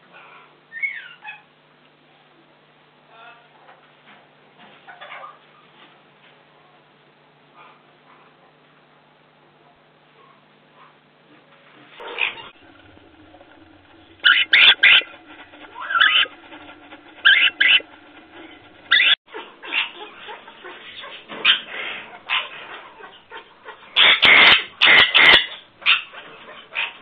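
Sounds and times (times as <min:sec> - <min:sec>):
parrots squeaky calls: 0:00.7 - 0:01.5, 0:14.2 - 0:16.4, 0:17.2 - 0:17.9, 0:18.9 - 0:19.2, 0:24.0 - 0:26.1
harsh parrot calls: 0:12.2 - 0:19.2, 0:24.0 - 0:25.6.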